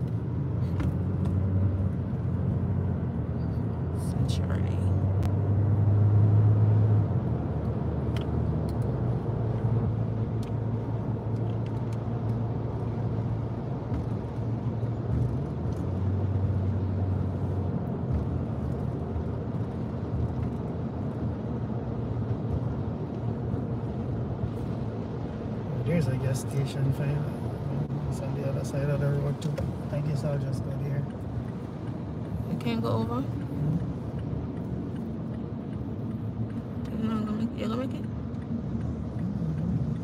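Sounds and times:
car engine and tyres rumble: 0:00.0 - 0:40.0.

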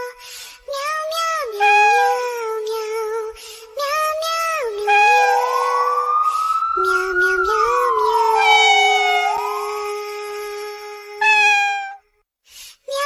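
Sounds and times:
meow-like sung notes: 0:01.6 - 0:02.4, 0:04.7 - 0:12.0
wailing siren: 0:04.9 - 0:10.6.

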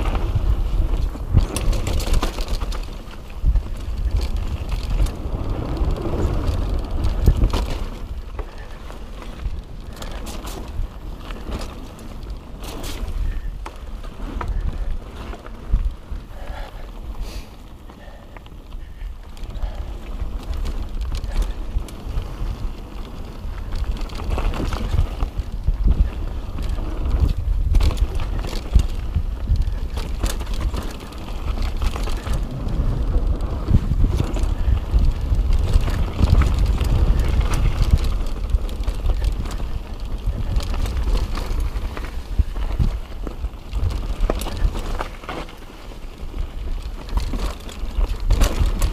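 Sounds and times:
bike rattling over rough trail: 0:00.0 - 0:48.9
wind rumbling on microphone: 0:00.0 - 0:48.9.

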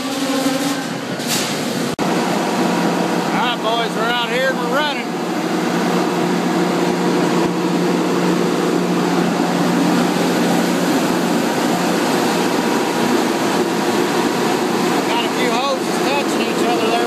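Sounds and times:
hydraulic pump motor humming: 0:00.0 - 0:17.0.

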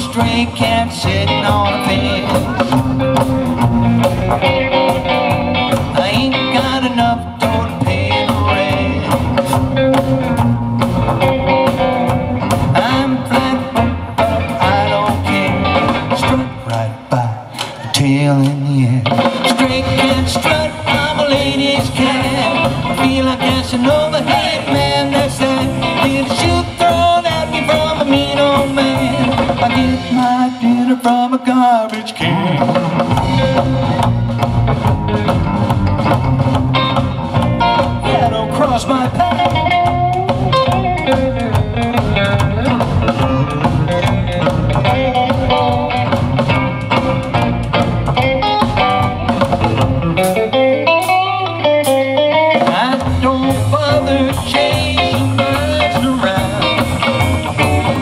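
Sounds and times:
upright double bass: 0:00.0 - 0:17.2, 0:19.6 - 0:30.4, 0:32.3 - 0:50.5, 0:53.0 - 0:58.0
drum kit: 0:00.0 - 0:58.0
electric guitar: 0:00.0 - 0:58.0.

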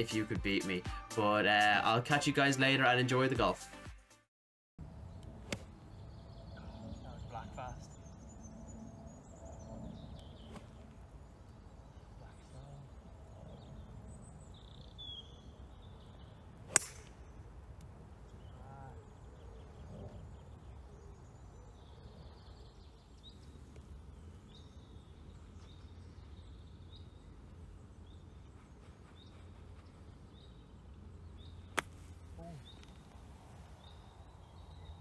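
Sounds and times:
bird chirping: 0:05.0 - 0:17.5, 0:18.2 - 0:35.0
golf club striking ball: 0:16.7 - 0:17.3, 0:31.7 - 0:32.0.

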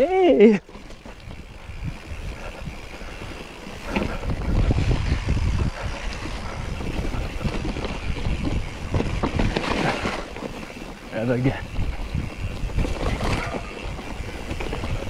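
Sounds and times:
bike rattling over rough ground: 0:00.0 - 0:15.0
wind buffeting microphone: 0:00.7 - 0:15.0.

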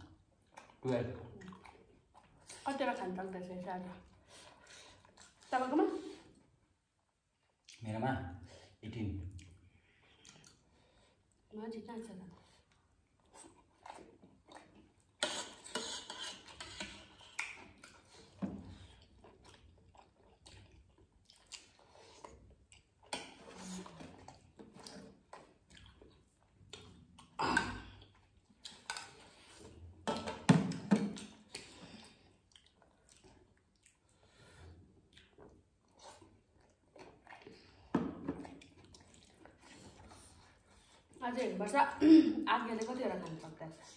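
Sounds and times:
chewing: 0:00.0 - 0:07.9, 0:09.3 - 0:11.5, 0:12.3 - 0:41.5.

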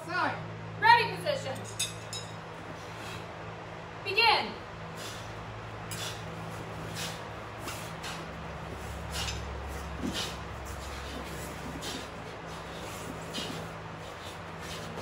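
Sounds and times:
steady low hum: 0:00.0 - 0:15.0
bare feet shuffling on mats: 0:05.0 - 0:15.0
metal weapons swishing through air: 0:05.0 - 0:15.0.

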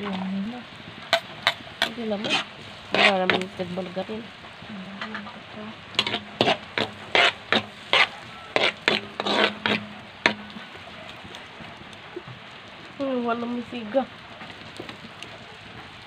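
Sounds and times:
onion and garlic sizzling in pan: 0:00.0 - 0:16.0
spatula scraping and knocking pan: 0:01.0 - 0:03.6, 0:05.9 - 0:11.8.

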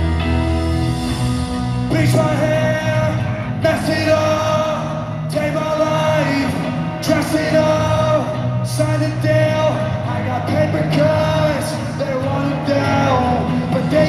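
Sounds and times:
live rock band playing: 0:00.0 - 0:14.0
person singing: 0:01.8 - 0:14.0.

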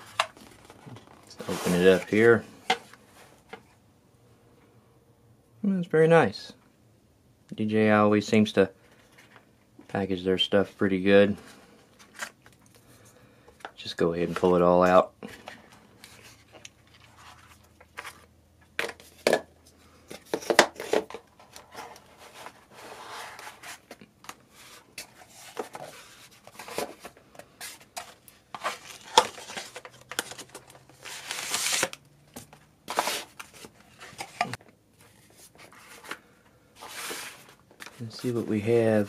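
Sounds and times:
cardboard and paper rustling: 0:00.0 - 0:03.6, 0:15.2 - 0:19.4, 0:20.0 - 0:39.0.

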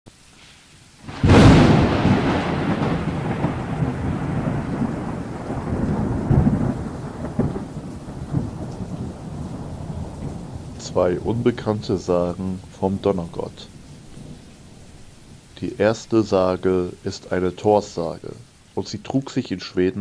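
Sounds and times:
steady rain: 0:00.1 - 0:20.0
thunder crack and rumble: 0:01.1 - 0:17.0.

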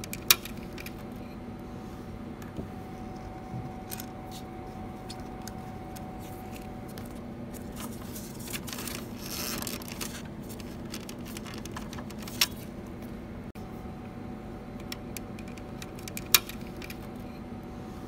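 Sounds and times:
steady low hum: 0:00.0 - 0:18.0
plastic parts rustling: 0:06.3 - 0:12.7.

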